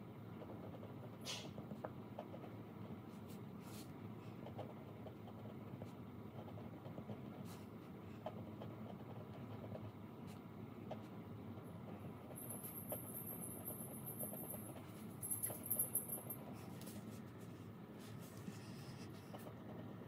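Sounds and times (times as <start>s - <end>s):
low room hum: 0.0s - 20.0s
pen scratching on paper: 3.3s - 11.1s.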